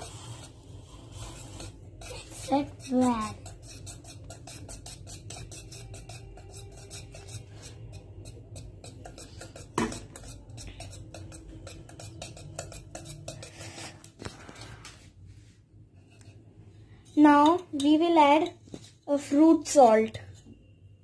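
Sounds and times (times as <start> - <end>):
utensil scraping steel bowl: 0.0 - 15.0, 16.0 - 20.5
utensil knocking bowl rim: 1.2 - 13.6.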